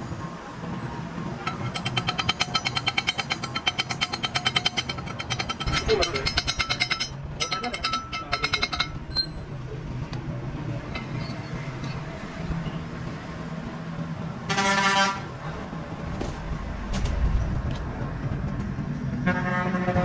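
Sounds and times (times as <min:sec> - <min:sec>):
low machinery hum: 0:00.9 - 0:14.5.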